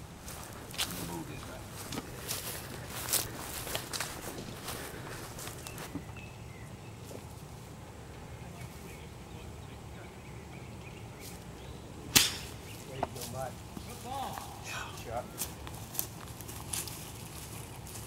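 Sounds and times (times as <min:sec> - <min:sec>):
golf iron striking ball: 0:12.1 - 0:12.7.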